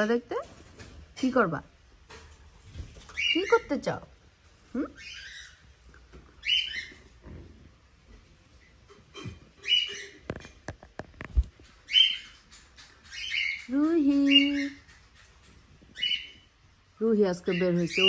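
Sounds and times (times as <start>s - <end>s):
parrot chirping: 3.0s - 7.2s, 8.9s - 10.6s, 11.3s - 18.0s.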